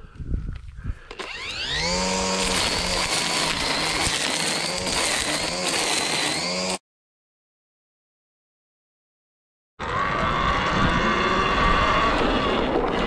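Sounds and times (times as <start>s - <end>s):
string trimmer whining: 1.0s - 6.8s, 9.8s - 13.0s.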